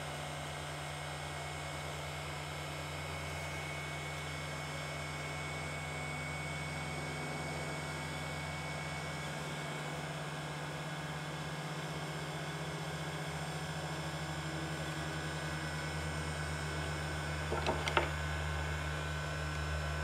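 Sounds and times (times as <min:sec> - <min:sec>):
electric motor and fan whirring: 0:01.6 - 0:20.0.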